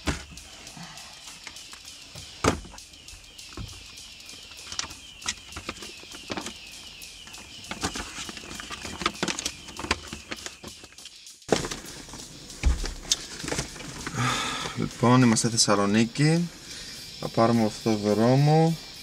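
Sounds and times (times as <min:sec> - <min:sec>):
rummaging in glove box: 0:00.0 - 0:00.5, 0:03.5 - 0:15.6
paper map crinkling and rustling: 0:04.5 - 0:14.2.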